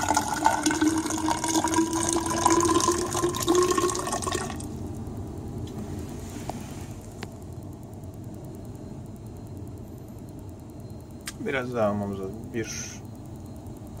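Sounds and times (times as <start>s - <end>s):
liquid pouring into cylinder: 0.0s - 4.8s.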